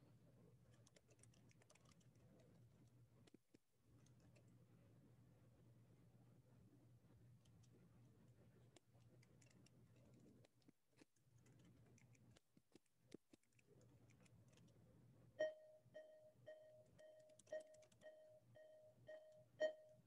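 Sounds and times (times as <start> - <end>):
low electronic hum: 15.4 - 20.0
short electronic beeps: 15.4 - 20.0.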